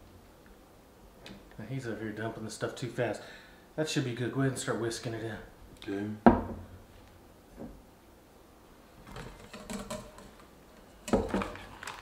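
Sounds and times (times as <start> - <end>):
whisk scraping and rattling: 9.1 - 12.0.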